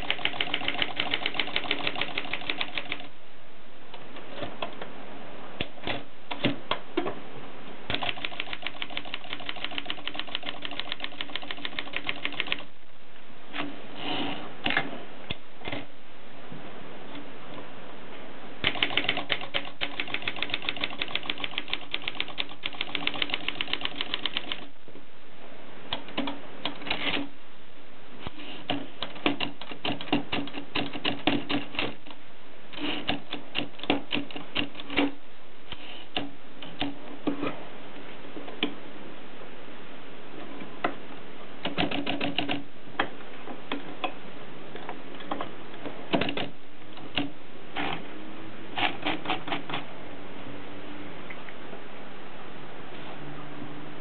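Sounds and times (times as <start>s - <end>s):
typewriter keystrokes: 0.0s - 3.1s, 7.9s - 12.7s, 18.6s - 24.7s.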